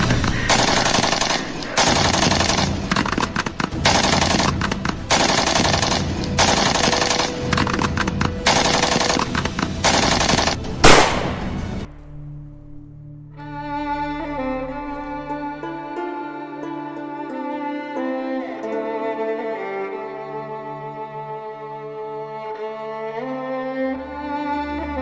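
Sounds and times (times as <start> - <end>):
sad bowed string music: 0.0 - 25.0
automatic gunfire: 0.5 - 11.9
loud single gunshot: 10.8 - 11.9.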